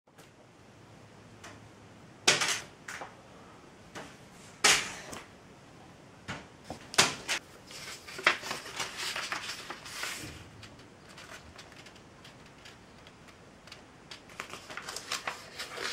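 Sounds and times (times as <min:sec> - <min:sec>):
stiff paper crackling: 0:07.2 - 0:15.9.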